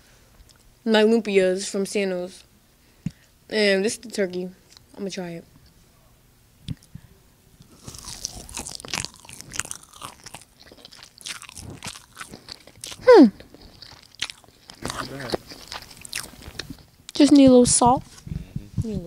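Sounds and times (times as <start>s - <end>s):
chewing and crunching food: 7.6s - 18.2s.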